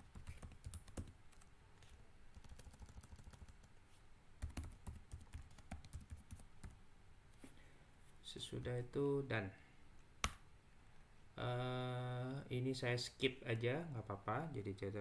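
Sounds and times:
typing on computer keyboard: 0:00.1 - 0:01.5, 0:02.3 - 0:03.7, 0:04.4 - 0:06.8.

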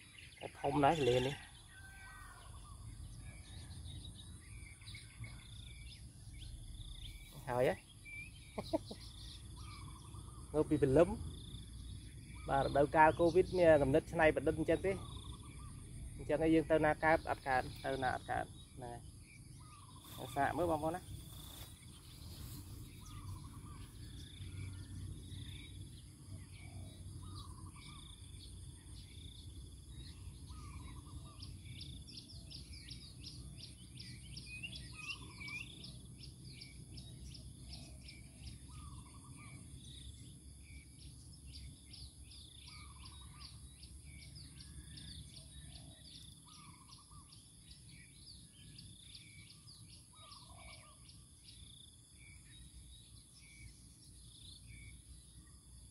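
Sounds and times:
insects whining: 0:05.0 - 0:35.6
bird calling: 0:06.8 - 0:11.1, 0:12.2 - 0:33.4, 0:34.1 - 0:35.8, 0:37.6 - 0:40.8, 0:42.4 - 0:48.4, 0:49.0 - 0:51.4.

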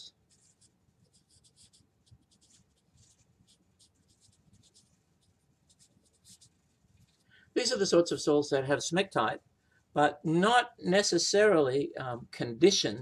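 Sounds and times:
marker scratching on paper: 0:00.0 - 0:07.2.

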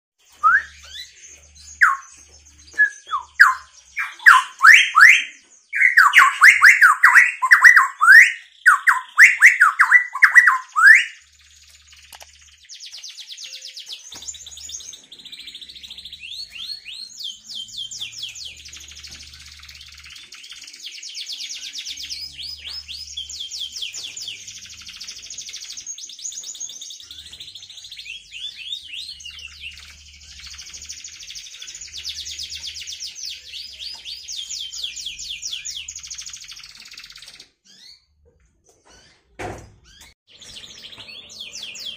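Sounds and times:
canary singing: 0:00.2 - 0:38.2, 0:39.8 - 0:41.9.

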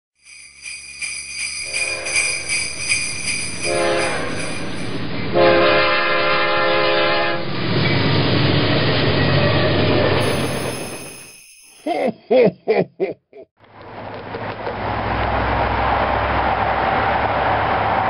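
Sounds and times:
warning bell ringing rapidly: 0:00.2 - 0:05.1, 0:10.2 - 0:12.1
passing train rumble: 0:01.3 - 0:11.2, 0:13.8 - 0:18.0
locomotive air horn blasts: 0:01.7 - 0:02.5, 0:03.6 - 0:04.6, 0:05.3 - 0:07.5.

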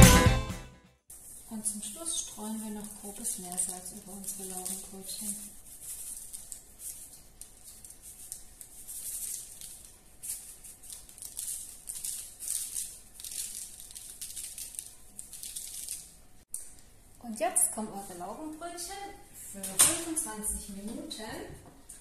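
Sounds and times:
salt rattling in a shaker: 0:02.4 - 0:16.2.

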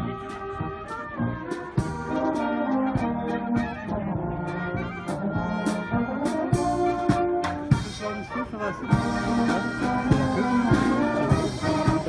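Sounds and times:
brass band playing: 0:00.0 - 0:12.0
steady drum beat: 0:05.0 - 0:12.0.

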